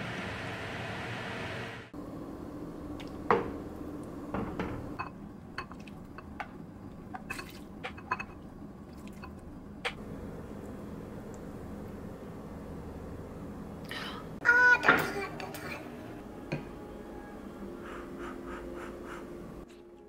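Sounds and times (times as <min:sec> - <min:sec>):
soup pouring and splashing: 0:06.9 - 0:09.5.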